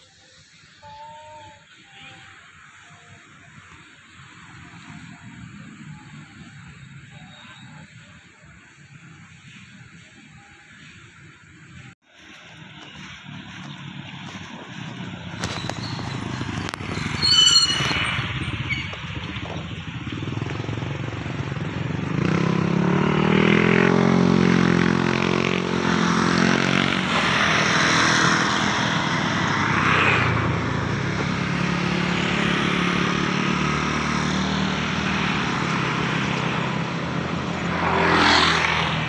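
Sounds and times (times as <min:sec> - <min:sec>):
wind and road rush: 0:01.6 - 0:39.0
motorcycle engine running: 0:12.2 - 0:27.2.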